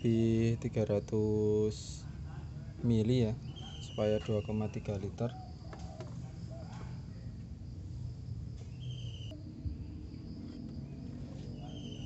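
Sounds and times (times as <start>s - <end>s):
low steady hum: 0.0s - 12.0s
insect buzzing and trilling: 7.6s - 12.0s.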